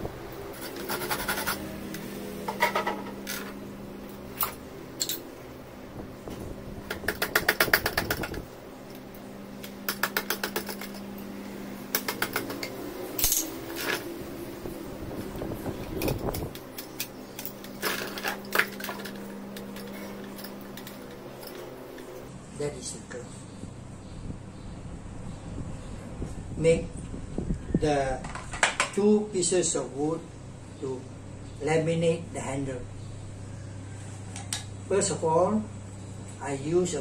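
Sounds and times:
handsaw rasping on wood: 0.6s - 1.7s.

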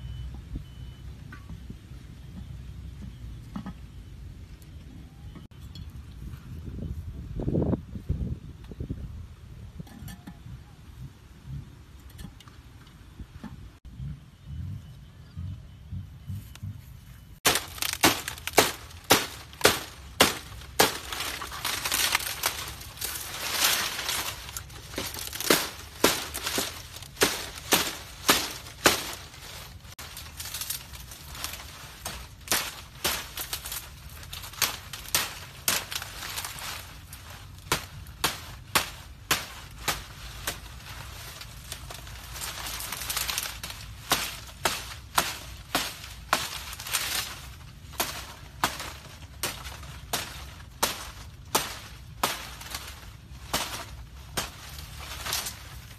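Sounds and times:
leaves crackling and rustling: 17.4s - 55.9s
machete chopping palm fronds: 17.4s - 55.9s.

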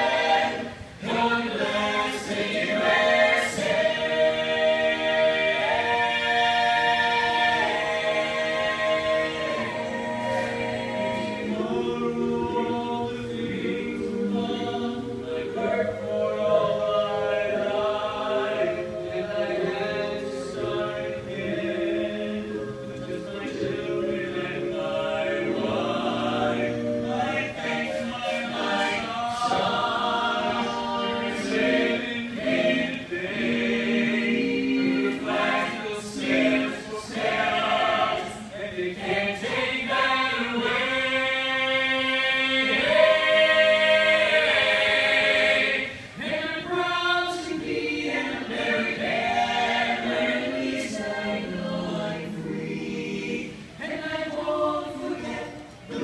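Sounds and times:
mixed choir singing a cappella: 0.0s - 56.0s.

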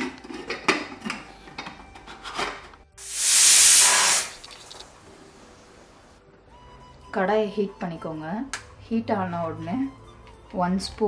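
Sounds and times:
pressure cooker steam hissing: 3.0s - 4.8s.

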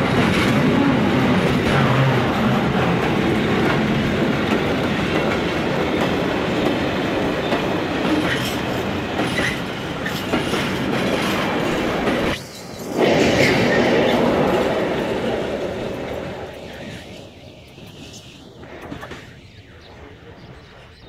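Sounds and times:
clickety-clack over rail joints: 0.0s - 19.7s
train wheels rumbling on rails: 0.0s - 21.0s.

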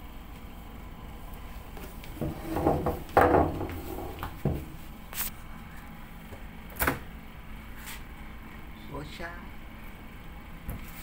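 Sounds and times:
knocks on a counter: 2.2s - 4.6s.

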